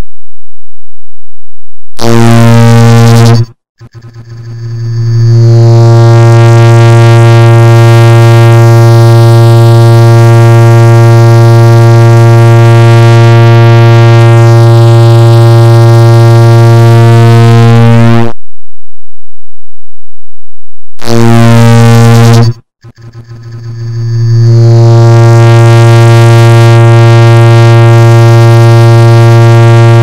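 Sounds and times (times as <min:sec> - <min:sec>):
loud steady low buzz: 0:02.0 - 0:30.0.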